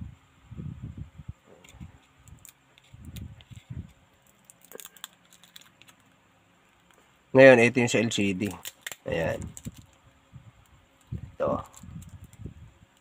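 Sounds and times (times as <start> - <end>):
soft handling sounds: 1.5 - 7.3.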